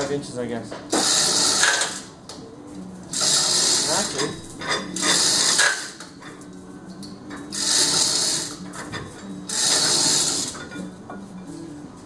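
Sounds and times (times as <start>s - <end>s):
rapid mechanical ratcheting: 1.0s - 2.0s, 3.1s - 4.4s, 5.0s - 6.0s, 7.5s - 8.6s, 9.5s - 10.8s.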